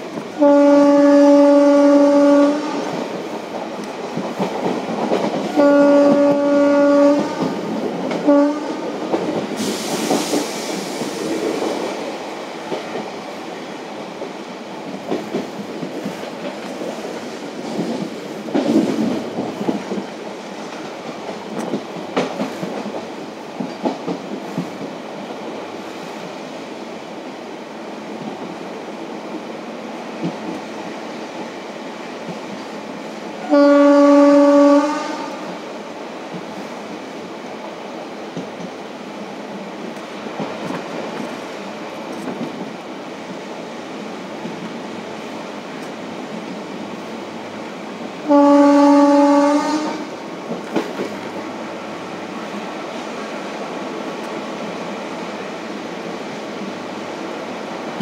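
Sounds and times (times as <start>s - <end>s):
train coaches rumbling: 0.0s - 58.0s
locomotive horn blasts: 0.4s - 2.9s, 5.5s - 7.5s, 8.2s - 8.9s, 33.4s - 35.4s, 48.3s - 50.1s.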